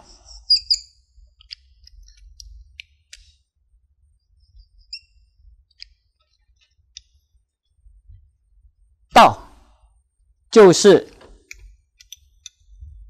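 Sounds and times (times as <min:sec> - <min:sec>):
marker squeaking on a whiteboard: 0:00.0 - 0:03.0, 0:04.3 - 0:07.1.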